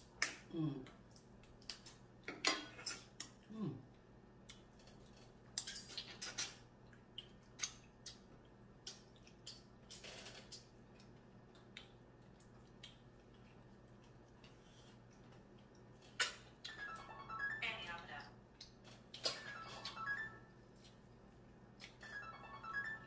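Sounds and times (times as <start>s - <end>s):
eating sounds: 2.7s - 16.8s.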